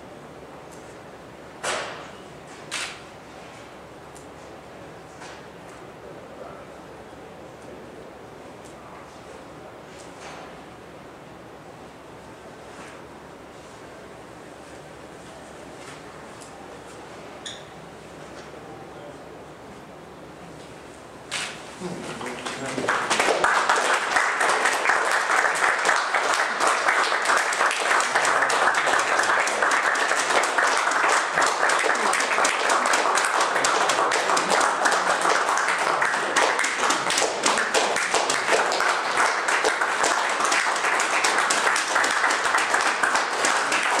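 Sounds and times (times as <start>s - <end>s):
audience applauding: 22.1s - 44.0s.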